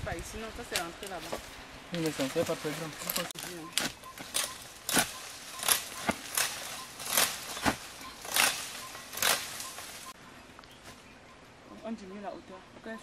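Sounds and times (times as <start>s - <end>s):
dry leaves crunching and rustling: 0.3s - 10.2s.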